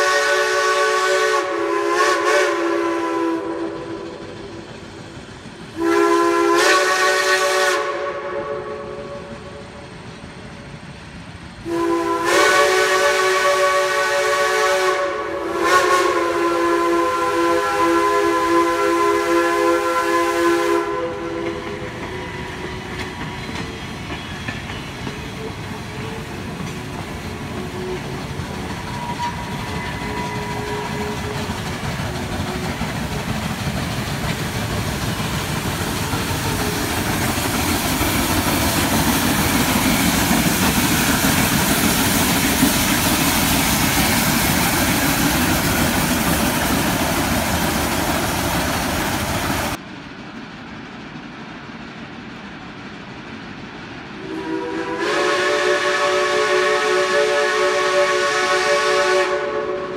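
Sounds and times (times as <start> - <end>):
steam whistle: 0.0 - 4.7, 5.8 - 9.8, 11.6 - 22.9, 27.5 - 31.5, 54.2 - 59.9
steam locomotive working: 0.0 - 59.9
train cars running over rails: 0.0 - 59.9.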